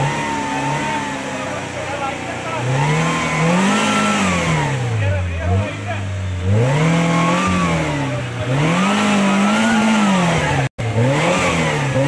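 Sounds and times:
engine revving hard: 0:00.0 - 0:12.0.

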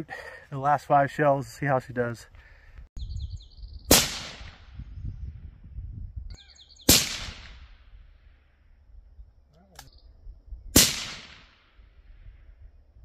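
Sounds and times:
suppressed rifle shots: 0:03.9 - 0:04.7, 0:06.9 - 0:08.0, 0:10.8 - 0:11.8.

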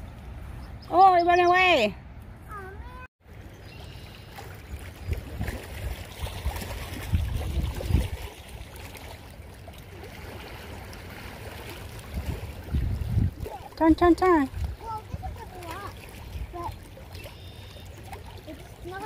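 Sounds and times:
small waves lapping on rocks: 0:03.3 - 0:19.0
wind gusting on microphone: 0:05.0 - 0:08.4, 0:12.0 - 0:15.5.

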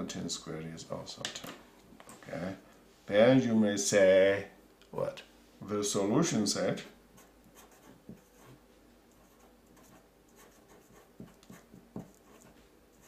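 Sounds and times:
marker pen scratching on paper: 0:07.2 - 0:08.6, 0:09.2 - 0:13.0.

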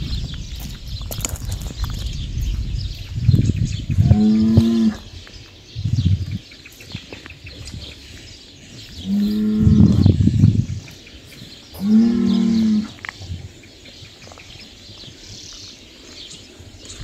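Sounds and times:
bull mooing: 0:04.0 - 0:05.1, 0:09.0 - 0:10.2, 0:11.8 - 0:13.0.

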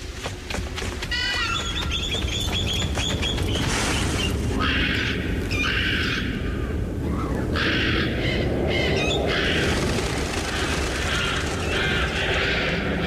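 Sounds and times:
steady low rumble: 0:02.9 - 0:13.0.

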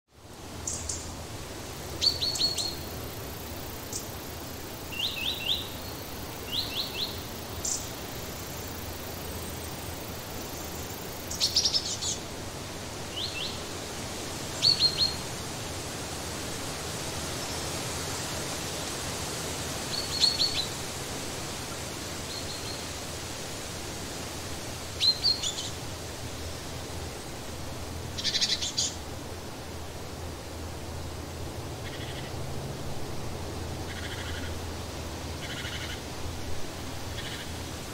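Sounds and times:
background hiss: 0:00.1 - 0:37.9
songbird chip calls: 0:00.6 - 0:01.1, 0:02.0 - 0:04.2, 0:04.9 - 0:08.7, 0:10.4 - 0:12.3, 0:13.1 - 0:13.6, 0:14.6 - 0:15.2, 0:19.9 - 0:20.8, 0:25.0 - 0:25.8, 0:28.1 - 0:29.0, 0:31.8 - 0:32.4, 0:33.9 - 0:34.6, 0:35.4 - 0:36.1, 0:37.1 - 0:37.7.

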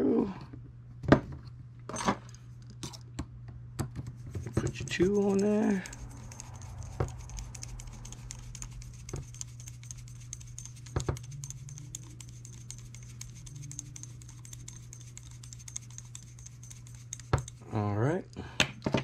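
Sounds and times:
steady low hum: 0:00.0 - 0:19.0
screwdriver ticking: 0:04.4 - 0:17.6.

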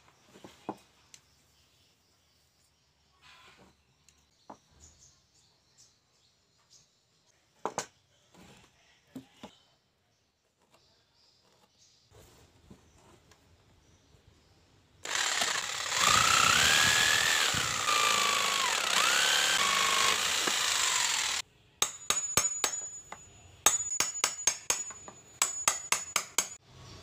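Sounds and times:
jigsaw cutting wood: 0:15.0 - 0:21.4
chisel struck into wood: 0:21.8 - 0:23.0, 0:23.7 - 0:26.6.

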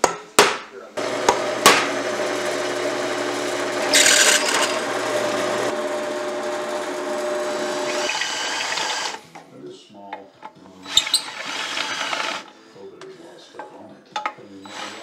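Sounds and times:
drill bit cutting metal: 0:01.0 - 0:09.2, 0:10.8 - 0:12.5, 0:14.6 - 0:15.0
drill press motor running: 0:01.0 - 0:09.2, 0:11.0 - 0:12.4.

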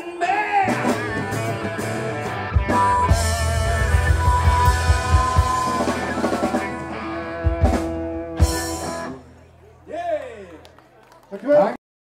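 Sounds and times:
keyboard: 0:00.0 - 0:09.9
bass: 0:00.0 - 0:11.0
drum kit: 0:00.6 - 0:09.2
electric guitar long wavering note: 0:01.6 - 0:09.2.

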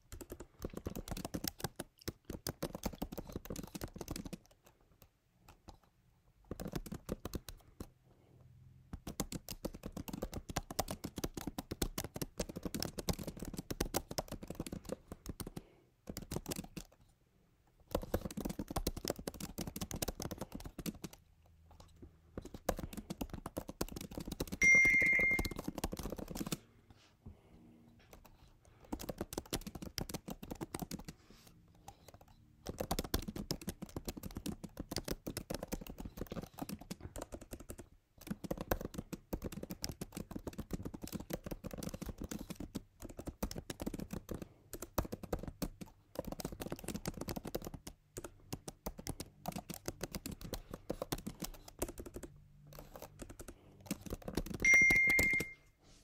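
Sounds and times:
keyboard typing clicks: 0:00.0 - 0:05.8, 0:06.5 - 0:07.9, 0:09.0 - 0:17.0, 0:17.9 - 0:21.2, 0:22.4 - 0:26.6, 0:28.1 - 0:31.1, 0:32.0 - 0:55.6
short high beep: 0:24.6 - 0:25.6, 0:54.7 - 0:55.8.

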